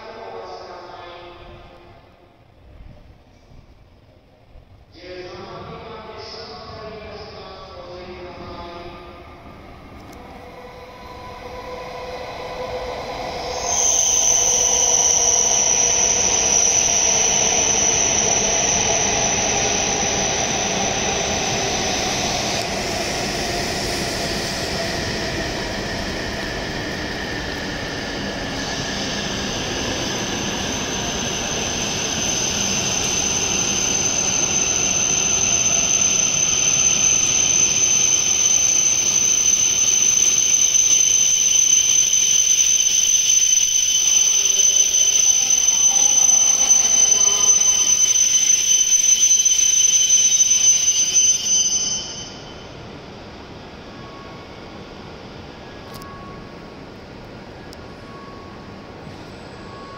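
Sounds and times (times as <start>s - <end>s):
high steady brake squeal: 6.3s - 53.0s, 53.8s - 56.8s, 57.9s - 59.9s
train motor whine falling in pitch: 10.0s - 23.0s, 23.9s - 52.6s.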